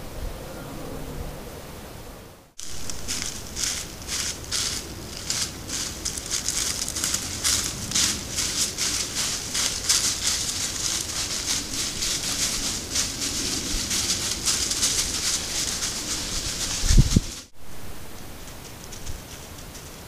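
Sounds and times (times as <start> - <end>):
dry leaves crackling: 2.6 - 20.0.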